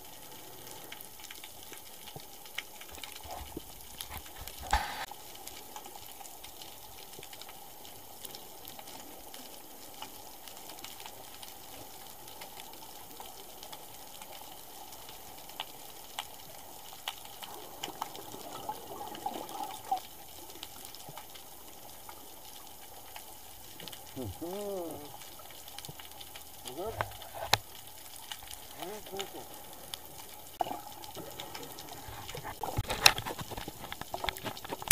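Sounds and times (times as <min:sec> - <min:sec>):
underwater watery hiss: 0:04.5 - 0:05.1
sharp underwater clicks: 0:23.1 - 0:34.9.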